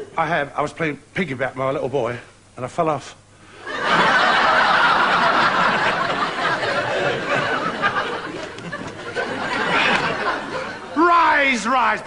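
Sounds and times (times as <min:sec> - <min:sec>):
studio audience laughing: 0:03.6 - 0:11.1.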